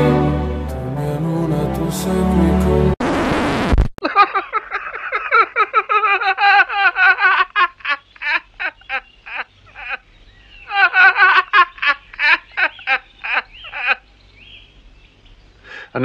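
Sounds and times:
rapid high chattering calls: 7.9s - 15.7s.

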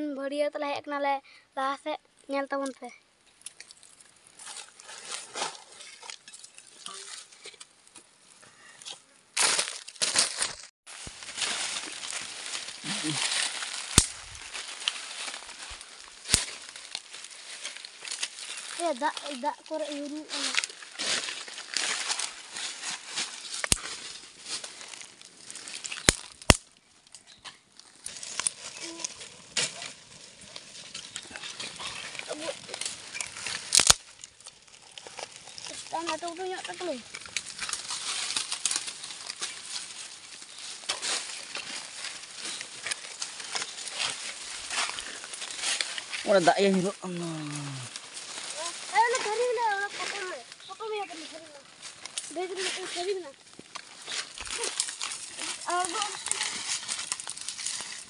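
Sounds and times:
dry leaves crackling and rustling: 3.5s - 7.6s, 9.4s - 58.0s
loud leaf crunching: 9.4s - 58.0s
sharp snaps of fire: 12.9s - 15.0s, 16.0s - 17.1s, 23.6s - 24.0s, 25.7s - 27.2s, 27.8s - 36.0s.

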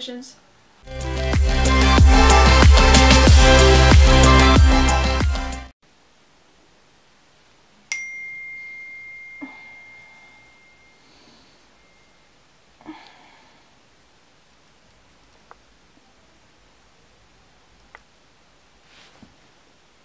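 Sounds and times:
bedding rustling: 18.7s - 19.7s.

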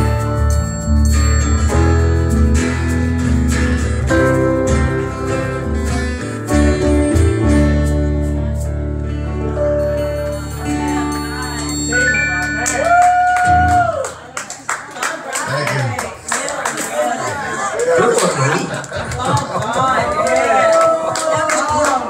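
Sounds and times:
acoustic guitar strumming: 0.0s - 13.8s
keyboard playing chords: 0.0s - 14.0s.

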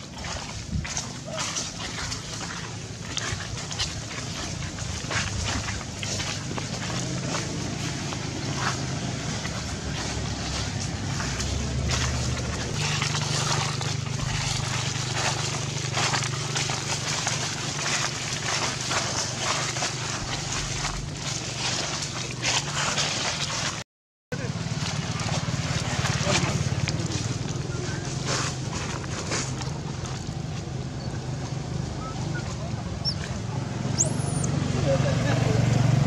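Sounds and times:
steady low hum: 0.0s - 23.8s
dry leaves crackling and rustling: 2.4s - 23.8s, 24.8s - 30.4s.

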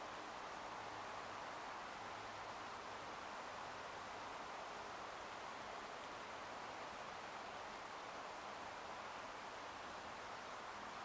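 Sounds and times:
faint steady hiss: 0.0s - 11.0s.

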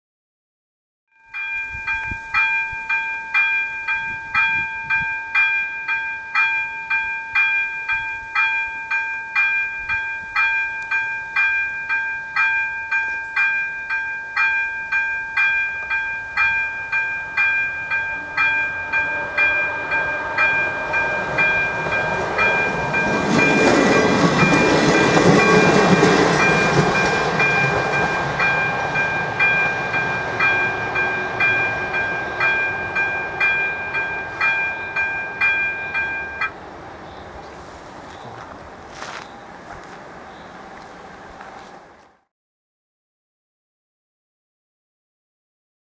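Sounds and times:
level crossing bell dinging: 1.2s - 36.5s
passing train rumble: 2.2s - 42.3s.

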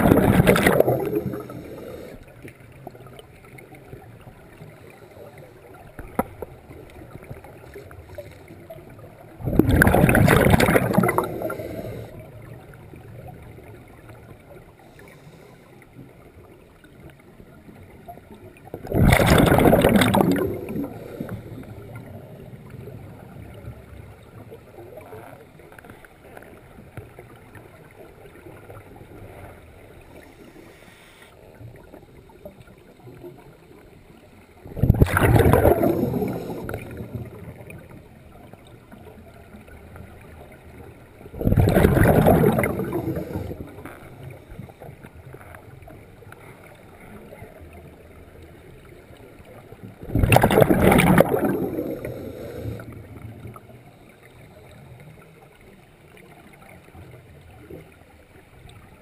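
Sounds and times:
diver's exhaled bubbles rushing: 0.0s - 2.2s, 9.3s - 12.1s, 18.7s - 23.0s, 34.6s - 37.7s, 41.3s - 44.0s, 50.0s - 53.5s
low steady hiss: 0.0s - 59.0s.

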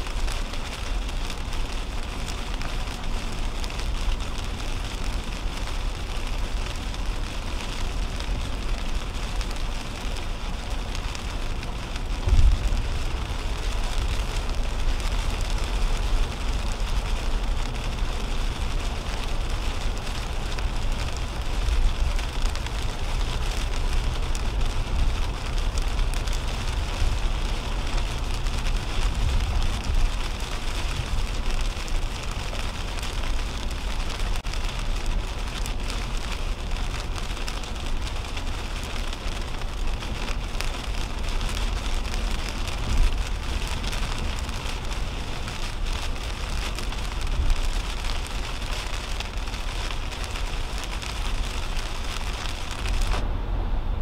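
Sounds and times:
rain pattering on car: 0.0s - 53.3s
tyres rumbling on wet road: 0.0s - 54.0s.

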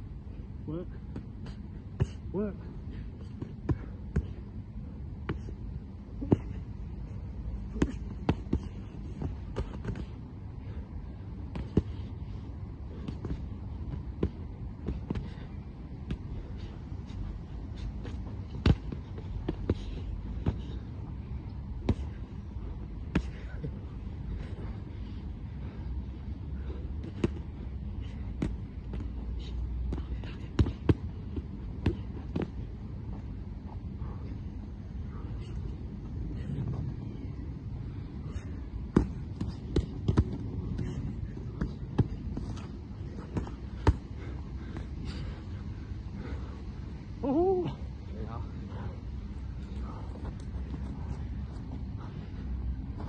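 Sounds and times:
low background rumble: 0.0s - 53.0s
boxing gloves hitting: 17.8s - 20.8s, 28.3s - 32.7s, 38.9s - 44.2s.

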